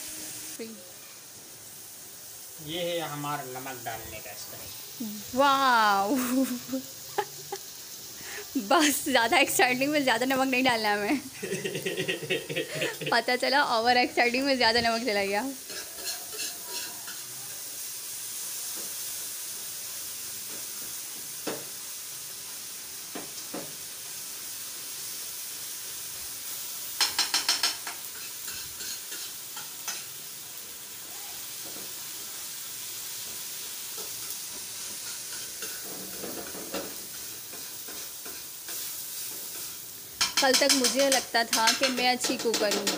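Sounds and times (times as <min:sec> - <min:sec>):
tomatoes sizzling on griddle: 0:00.0 - 0:42.9
utensils scraping and tapping pan: 0:15.6 - 0:17.3, 0:27.0 - 0:30.1, 0:34.0 - 0:42.9.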